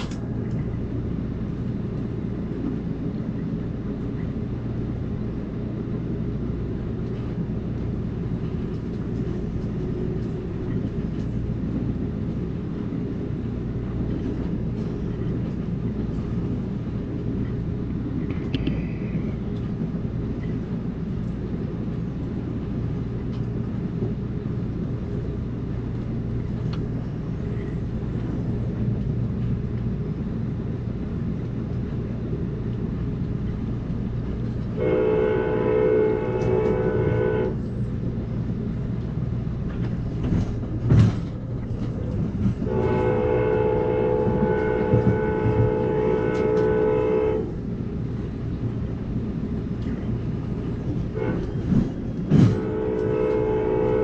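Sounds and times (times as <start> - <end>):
train rumbling along track: 0.0 - 54.0
faint clicks: 18.2 - 18.9.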